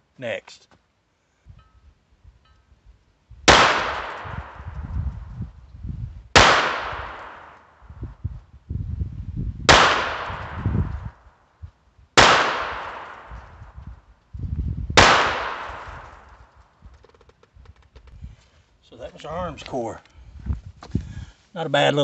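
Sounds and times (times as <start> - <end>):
wind rumbling on microphone: 1.4 - 18.5, 19.2 - 21.4
pistol shots with echo: 3.5 - 4.6, 6.4 - 7.6, 9.7 - 10.7, 12.2 - 13.4, 15.0 - 16.2.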